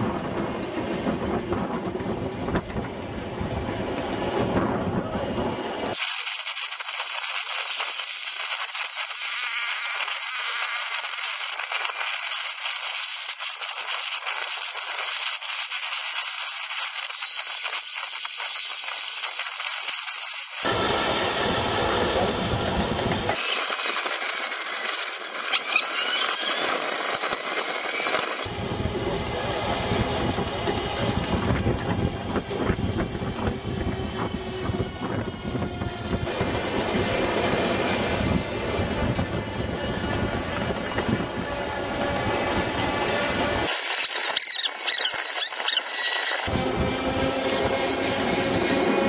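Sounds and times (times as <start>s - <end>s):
wind buffeting microphone: 0.0s - 6.0s, 20.7s - 23.4s, 26.6s - 43.7s, 45.2s - 49.0s
miniature train rumbling and clattering: 0.0s - 49.0s
high rattling hiss: 6.0s - 20.7s
deep rushing noise: 28.5s - 43.7s.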